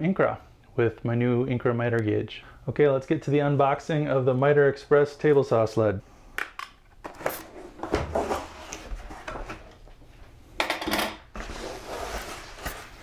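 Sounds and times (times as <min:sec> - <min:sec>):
cardboard scraping and rubbing: 0:07.1 - 0:09.7, 0:11.3 - 0:13.0.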